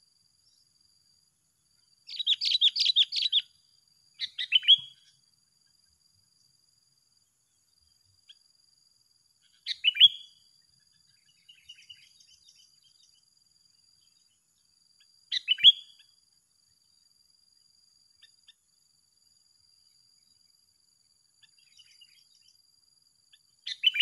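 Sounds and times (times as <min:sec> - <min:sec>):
bird twittering: 0:02.1 - 0:03.5, 0:04.2 - 0:05.1, 0:09.5 - 0:10.3, 0:15.3 - 0:16.0, 0:23.7 - 0:24.0.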